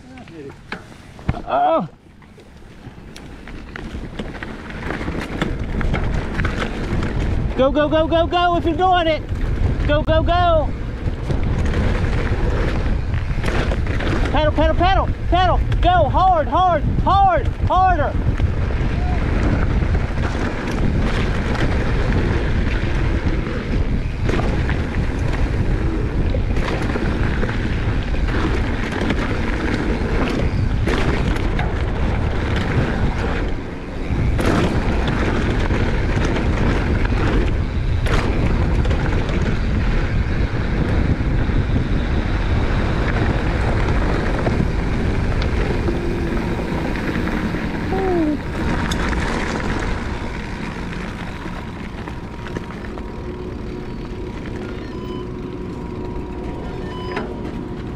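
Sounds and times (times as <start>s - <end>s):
bike knocking and rattling: 0.0s - 57.9s
wind rush on microphone: 0.0s - 57.9s.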